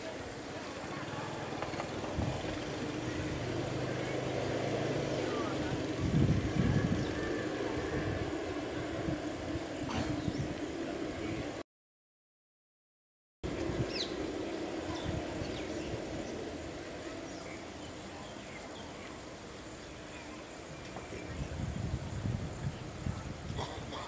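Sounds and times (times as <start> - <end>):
high insect drone: 0.0 - 11.6, 13.5 - 24.0
jet engines rumbling: 0.0 - 11.6, 13.5 - 24.0
birds chirping: 13.5 - 21.6.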